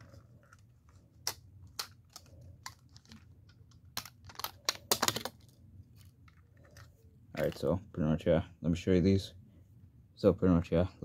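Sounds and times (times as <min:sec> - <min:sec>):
plastic toy clicks and rustles: 0:01.2 - 0:06.9.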